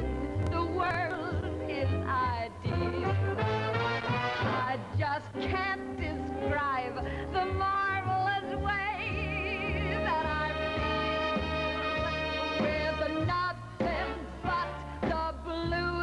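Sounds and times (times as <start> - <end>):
band accompaniment: 0.0 - 16.0
woman singing: 0.4 - 3.5, 4.2 - 16.0.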